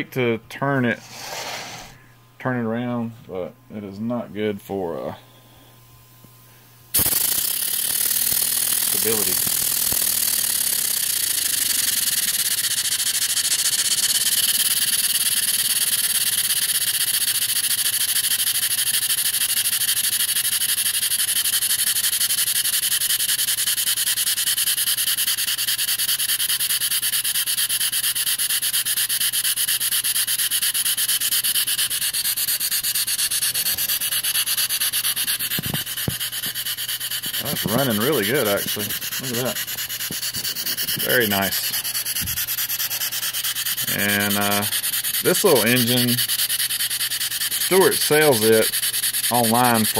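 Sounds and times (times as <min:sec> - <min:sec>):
model steam engine chuffing: 0:07.0 - 0:49.9.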